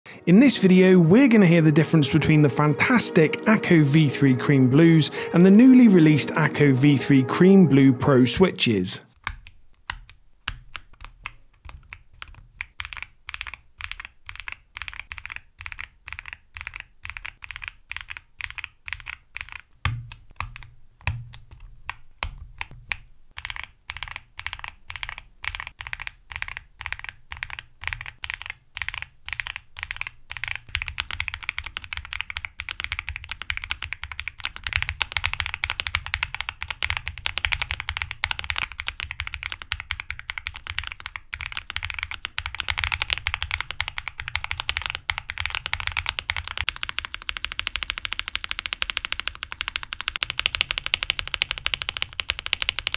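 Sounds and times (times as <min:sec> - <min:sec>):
mechanical keyboard typing: 0:09.2 - 0:52.9.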